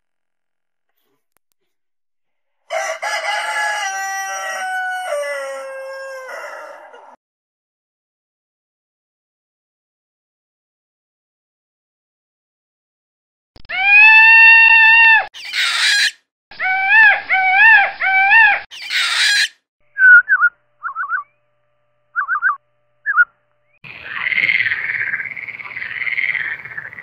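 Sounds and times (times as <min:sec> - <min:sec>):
peacock wailing calls: 0:13.7 - 0:19.5
chirping trills: 0:15.4 - 0:16.2, 0:16.9 - 0:27.0
frog croaking: 0:23.8 - 0:27.0.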